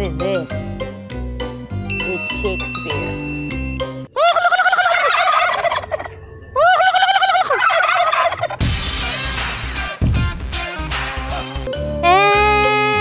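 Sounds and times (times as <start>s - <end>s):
upbeat music: 0.0s - 4.1s, 8.6s - 13.0s
turkeys gobbling: 4.1s - 9.2s.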